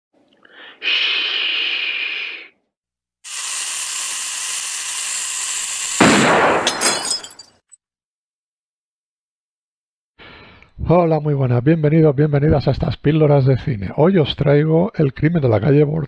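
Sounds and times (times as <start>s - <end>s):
gunshot bang: 6.0s - 7.0s.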